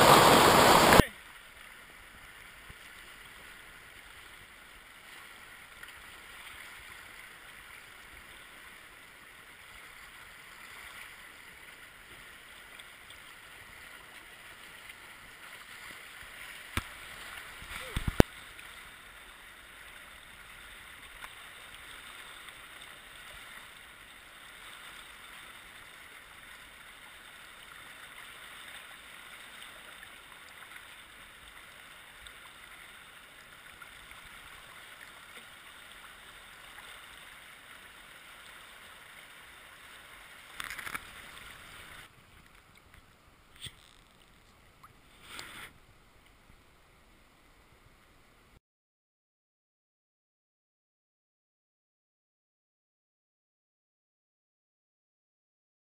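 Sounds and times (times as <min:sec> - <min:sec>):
water splashing: 0:00.0 - 0:01.1, 0:10.4 - 0:25.3, 0:33.8 - 0:45.7
whitewater rapids rushing: 0:00.0 - 0:01.1
flat water flowing: 0:00.0 - 0:48.6.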